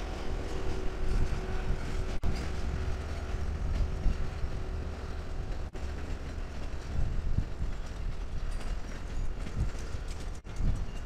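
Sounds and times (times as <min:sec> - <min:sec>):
passenger train rumbling past: 0:00.0 - 0:11.0.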